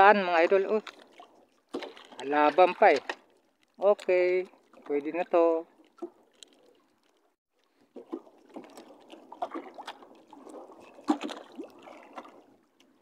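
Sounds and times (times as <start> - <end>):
seawater splashing and trickling: 0.0 - 13.0.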